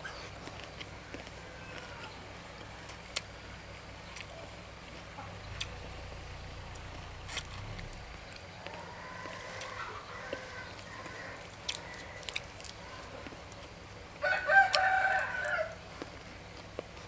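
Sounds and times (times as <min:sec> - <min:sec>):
faint eating clicks: 0:00.1 - 0:05.9, 0:06.6 - 0:13.9
rooster crowing: 0:08.7 - 0:12.2, 0:14.2 - 0:15.8.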